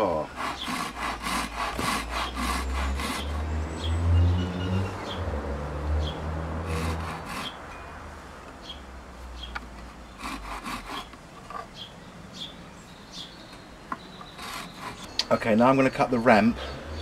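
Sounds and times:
handsaw cutting wood: 0:00.0 - 0:03.7, 0:06.5 - 0:07.6, 0:09.8 - 0:11.2, 0:14.2 - 0:15.1.

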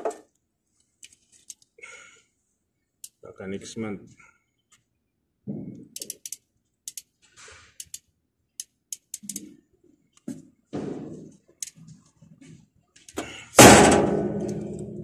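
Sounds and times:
pliers clicking and scraping: 0:06.0 - 0:07.1, 0:07.8 - 0:09.6.

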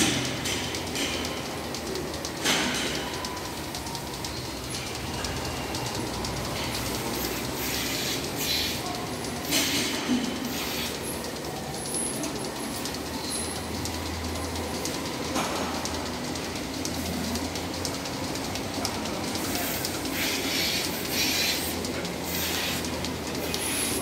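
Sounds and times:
machinery rumble and clatter: 0:00.0 - 0:24.0
hissing air bursts: 0:05.6 - 0:11.4, 0:17.9 - 0:24.0.

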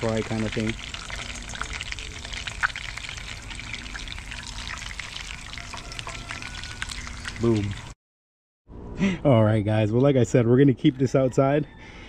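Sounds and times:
hot oil sizzling and crackling: 0:00.0 - 0:08.0.

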